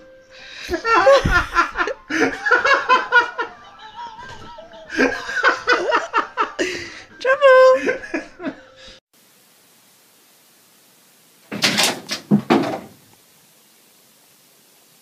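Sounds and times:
clatter of knocks and bumps: 0:11.5 - 0:13.0.

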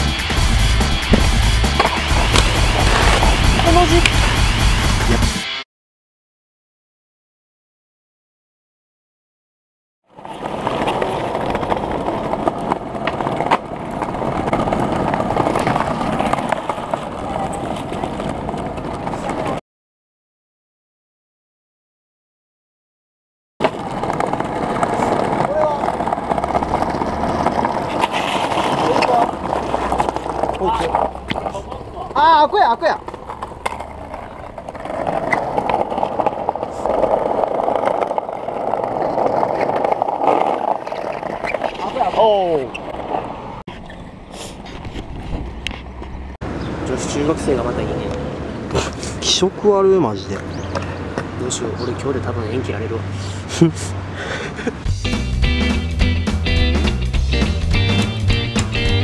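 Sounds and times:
skateboard wheels rolling on bricks: 0:00.0 - 0:05.3, 0:10.1 - 0:19.6, 0:23.6 - 0:46.4, 0:54.8 - 0:59.0.

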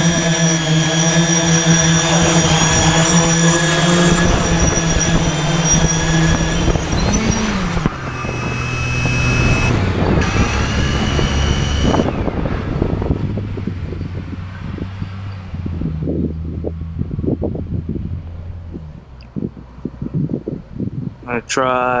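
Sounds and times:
drone motors and propellers humming: 0:00.0 - 0:13.8.

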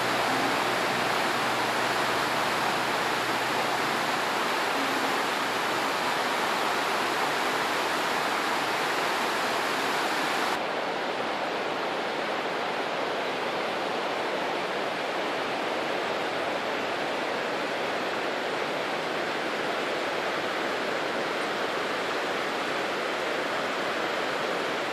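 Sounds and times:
running water rushing: 0:00.0 - 0:10.7.

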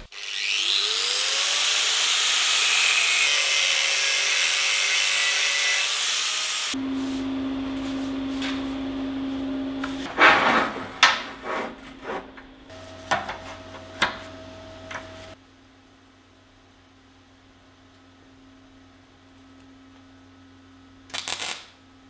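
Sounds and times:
machine hum: 0:06.7 - 0:15.4
tools scraping and knocking: 0:09.9 - 0:15.3.

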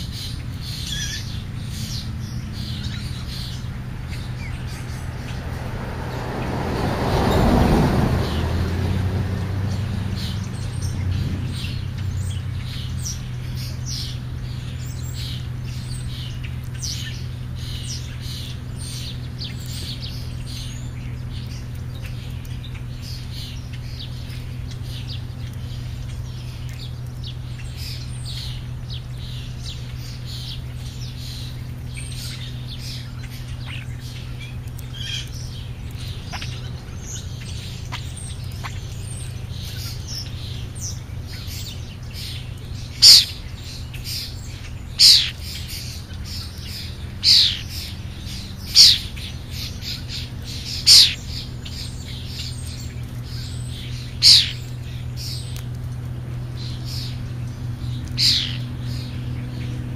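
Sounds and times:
low hum: 0:00.0 - 0:59.9
starlings chirping: 0:00.0 - 0:59.9
harsh downward-sweeping bird calls: 0:27.5 - 0:55.6, 0:56.6 - 0:59.8.

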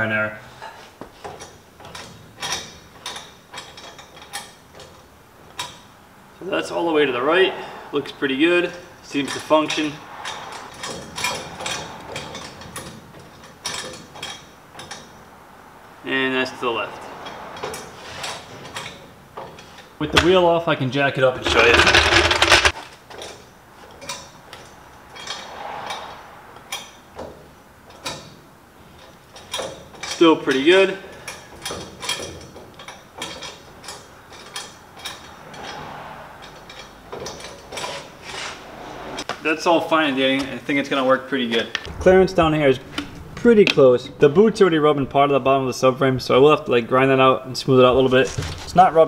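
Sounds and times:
mechanical clicks and knocks: 0:21.4 - 0:22.8.

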